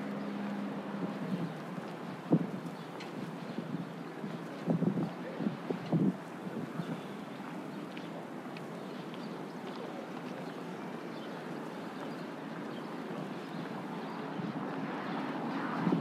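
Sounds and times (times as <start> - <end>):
distant road traffic: 0.0 - 16.0.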